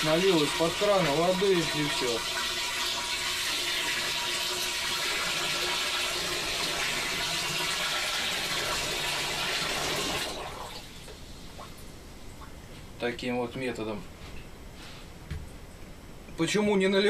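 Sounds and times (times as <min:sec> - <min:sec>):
water pouring into plastic tank: 0:00.0 - 0:11.8.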